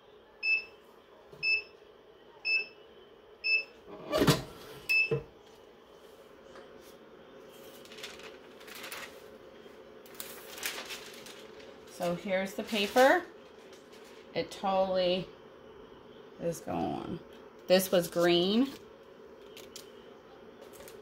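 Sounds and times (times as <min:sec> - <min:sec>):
faint paper rustling: 0:05.4 - 0:14.4, 0:20.6 - 0:21.0.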